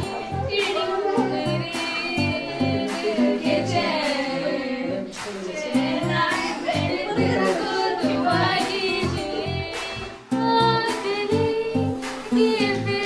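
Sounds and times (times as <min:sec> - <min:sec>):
women singing together: 0:00.0 - 0:13.0.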